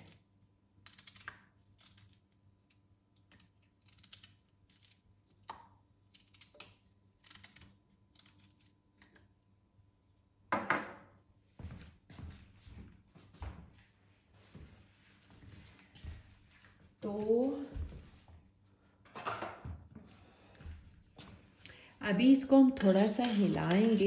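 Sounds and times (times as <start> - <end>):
crackling and snapping: 0.8 - 9.2.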